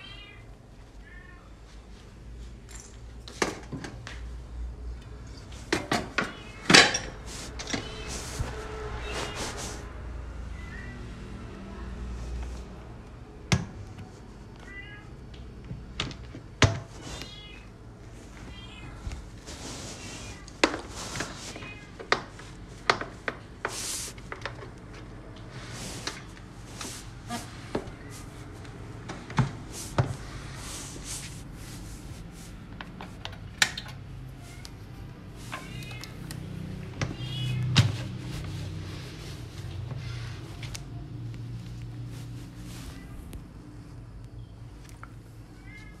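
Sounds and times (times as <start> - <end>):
cat meowing: 0.0 - 1.6, 6.1 - 7.0, 7.7 - 9.8, 10.5 - 11.3, 14.6 - 15.2, 17.0 - 17.7, 18.4 - 19.1, 20.0 - 20.6, 21.3 - 22.0, 35.5 - 36.3, 37.0 - 37.8, 42.8 - 43.4, 45.5 - 46.0.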